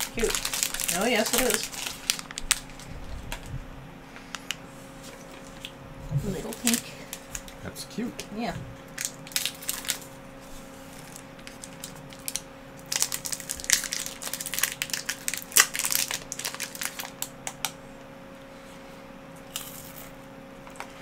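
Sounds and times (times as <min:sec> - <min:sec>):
candy wrapper crinkling: 0:00.0 - 0:03.5, 0:06.3 - 0:07.6, 0:09.0 - 0:10.1, 0:10.9 - 0:17.8.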